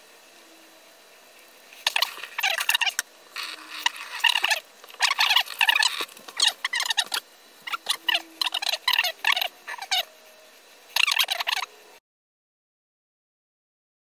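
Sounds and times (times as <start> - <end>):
squeaky wet rubbing: 1.9 - 10.1.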